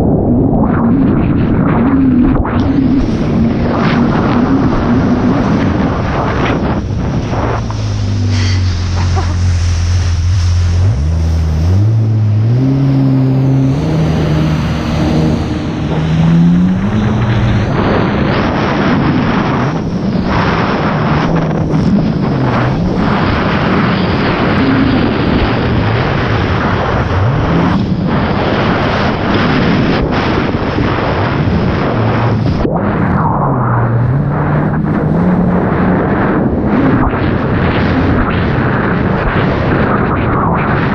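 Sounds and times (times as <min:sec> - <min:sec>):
jet ski engine: 0:00.0 - 0:40.9
wind buffeting microphone: 0:00.0 - 0:40.9
water spray hissing: 0:07.7 - 0:12.0.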